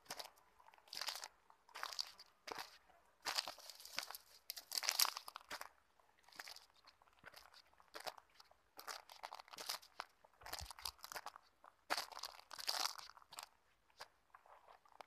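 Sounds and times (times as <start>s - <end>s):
footsteps crunching on leaves: 3.3s - 5.4s.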